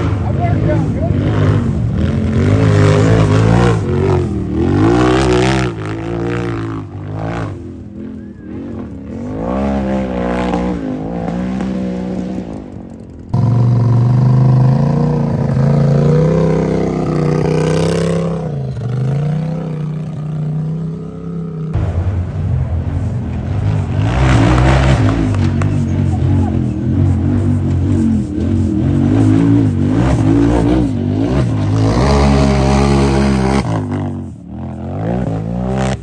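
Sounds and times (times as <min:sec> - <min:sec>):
engine revving hard: 0:00.0 - 0:07.6, 0:23.6 - 0:36.0.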